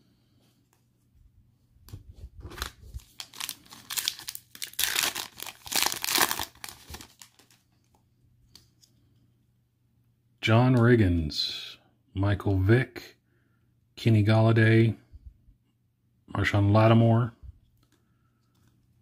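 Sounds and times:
plastic wrapper tearing and crinkling: 2.5s - 7.6s.

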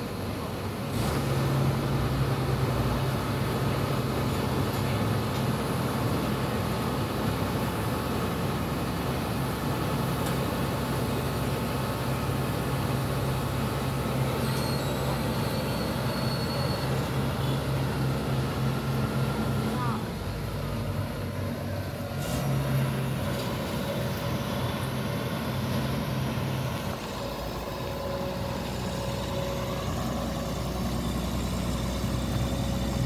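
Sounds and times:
excavator diesel engine under load: 0.0s - 33.0s
faint high whistle: 14.3s - 17.7s
steel tracks crawling: 18.2s - 33.0s.

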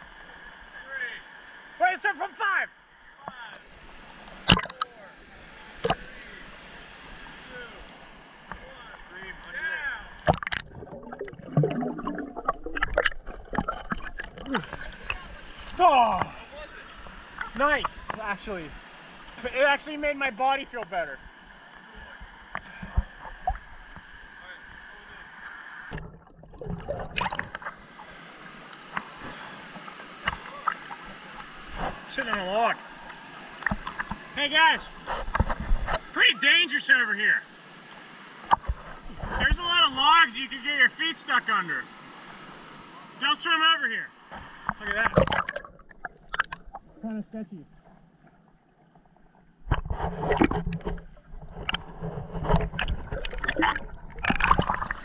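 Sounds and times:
water lapping at camera housing: 3.2s - 5.0s, 5.8s - 25.1s, 25.8s - 36.6s, 44.2s - 55.0s
creek water splashing and bubbling: 3.6s - 5.0s, 7.8s - 24.2s, 25.9s - 36.1s, 44.5s - 55.0s
water drips: 10.1s - 16.3s, 52.7s - 55.0s.

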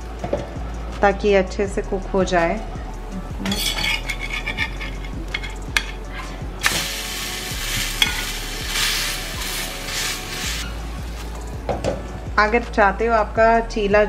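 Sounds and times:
metal spatula scraping and tapping: 3.5s - 6.8s, 7.8s - 8.4s
flatbread sizzling on a griddle: 6.1s - 11.3s.

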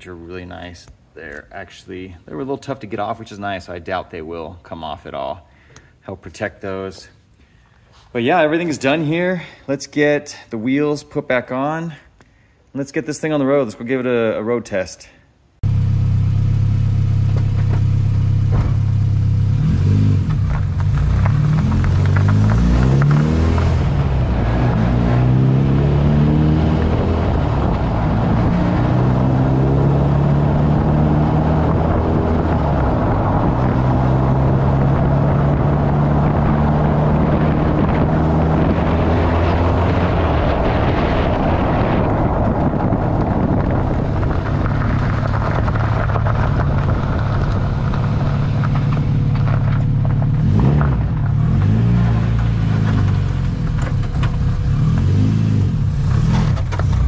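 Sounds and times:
car engine drone: 15.6s - 57.0s
tyre and wind rush: 19.7s - 49.6s.

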